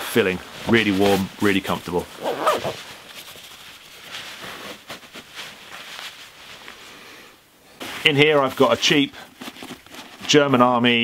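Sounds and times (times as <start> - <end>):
nylon jacket rustling: 0.3 - 7.0.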